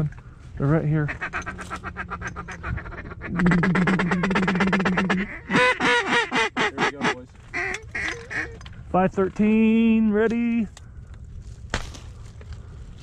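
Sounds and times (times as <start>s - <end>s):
duck call feeding chatter: 1.0s - 8.6s
duck call quacks: 1.0s - 8.6s.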